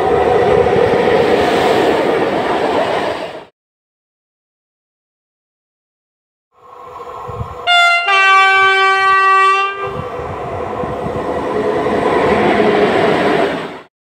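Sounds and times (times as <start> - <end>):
train rumbling past: 0.0 - 3.5, 6.6 - 13.9
two-tone locomotive horn: 7.6 - 10.0.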